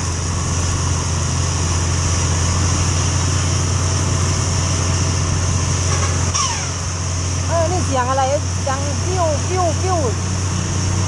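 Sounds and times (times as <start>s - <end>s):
motorcycle engine drone: 0.0s - 11.0s
short falling whistle: 6.3s - 6.8s.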